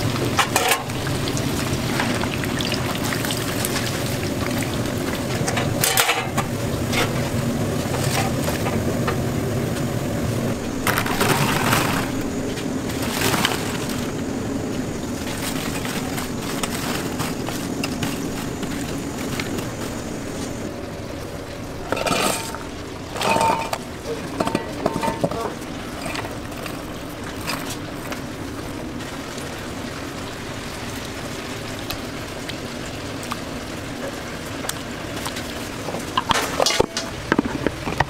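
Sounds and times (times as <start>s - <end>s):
frying sizzle: 0.0s - 38.0s
kitchen clatters: 0.3s - 1.0s, 5.3s - 9.2s, 10.8s - 12.3s, 21.8s - 27.8s, 35.8s - 38.0s.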